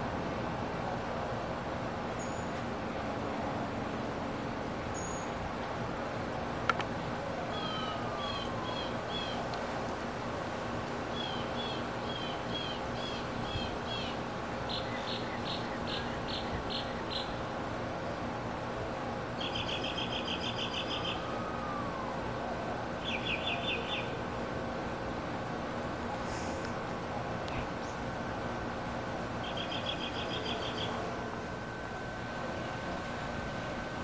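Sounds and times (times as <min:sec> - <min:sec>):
songbirds singing: 0:02.2 - 0:02.6, 0:07.5 - 0:09.4, 0:11.1 - 0:18.3, 0:19.4 - 0:21.7, 0:23.0 - 0:24.2, 0:29.3 - 0:31.0
faint low slurred bird call: 0:07.5 - 0:09.4.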